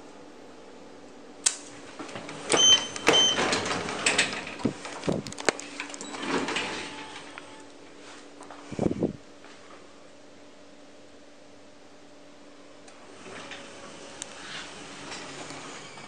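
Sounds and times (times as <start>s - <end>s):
elevator chime beeps: 2.5s - 3.6s.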